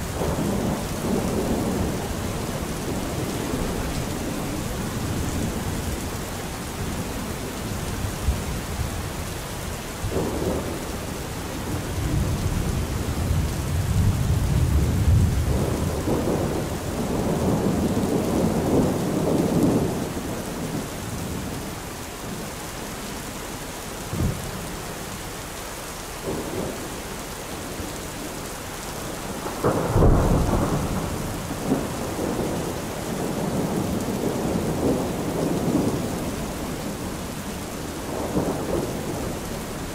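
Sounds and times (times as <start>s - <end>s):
steady rain: 0.0s - 39.9s
thunder rolling: 29.3s - 36.4s
sharp thunder cracks: 29.4s - 32.6s.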